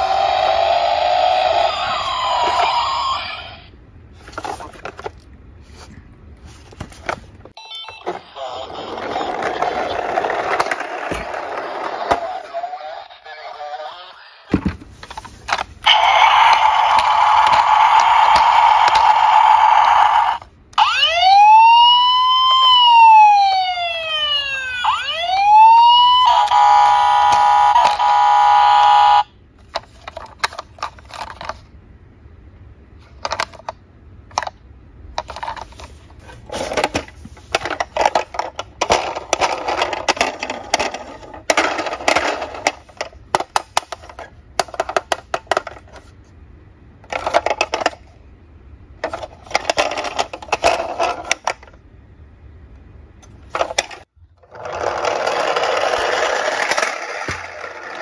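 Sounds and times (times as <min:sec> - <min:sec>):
toy siren wailing: 0:00.0 - 0:03.7, 0:15.9 - 0:29.3
plastic toy clicking and rattling: 0:36.7 - 0:46.0, 0:53.5 - 0:58.0.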